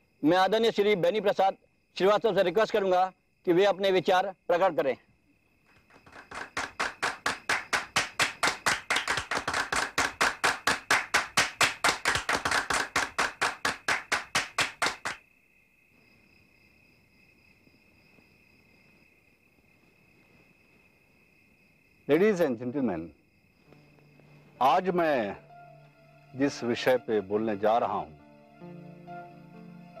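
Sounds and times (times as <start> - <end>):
crickets trilling: 0.0 - 30.0
crowd applauding in rhythm: 5.8 - 15.2.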